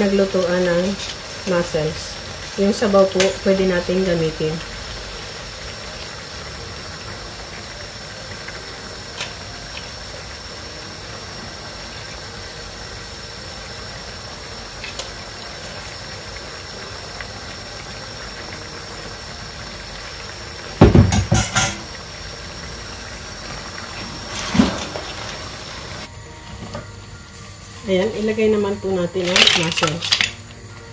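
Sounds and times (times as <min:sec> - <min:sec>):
steady hiss: 0:00.0 - 0:29.2
utensils clattering against pans: 0:20.8 - 0:21.9, 0:29.2 - 0:30.5
broth being ladled: 0:23.8 - 0:26.1.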